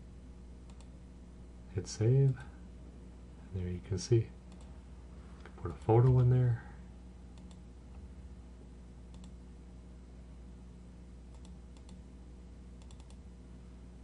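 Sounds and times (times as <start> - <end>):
steady low hum: 0.0 - 14.0
computer mouse clicking: 0.7 - 0.9, 4.5 - 4.7, 7.4 - 7.6, 9.1 - 9.4, 11.3 - 12.0, 12.8 - 13.2.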